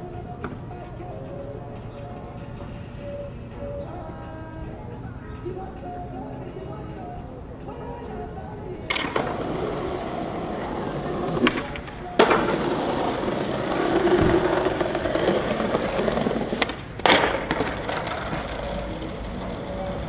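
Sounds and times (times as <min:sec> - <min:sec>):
skateboard clacking on ground: 0:00.0 - 0:04.1, 0:08.2 - 0:20.0
skateboard wheels rolling on stone: 0:08.8 - 0:20.0.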